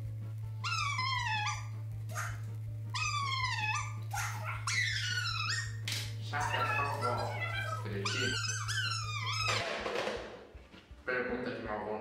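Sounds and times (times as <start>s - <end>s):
steady low hum: 0.0s - 12.0s
dog-like whimpering: 0.6s - 5.8s, 6.4s - 9.7s.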